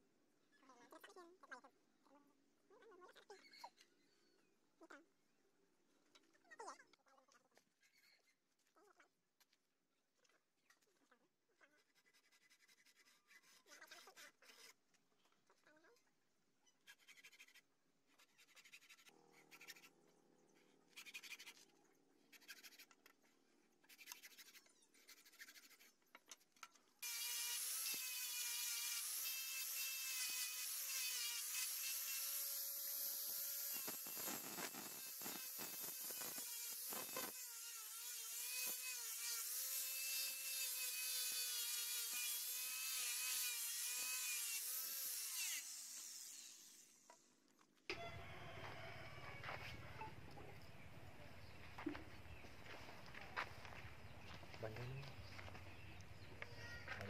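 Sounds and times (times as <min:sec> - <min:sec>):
hacksaw cutting steel: 0:25.1 - 0:47.1
angle grinder high whine: 0:27.0 - 0:38.8.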